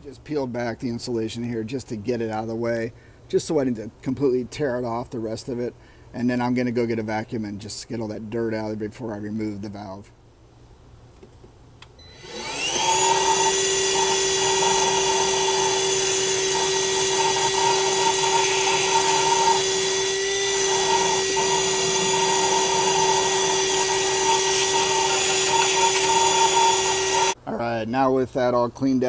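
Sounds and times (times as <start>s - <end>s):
wet dry vacuum motor whining: 12.0s - 27.4s.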